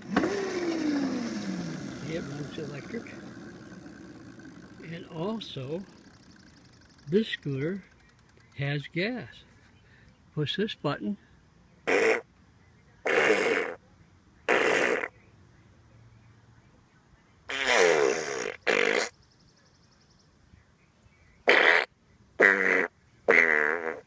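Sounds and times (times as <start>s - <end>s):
fart sound effects: 11.9s - 12.3s, 13.1s - 13.8s, 14.5s - 15.1s, 17.5s - 19.1s, 21.5s - 24.0s.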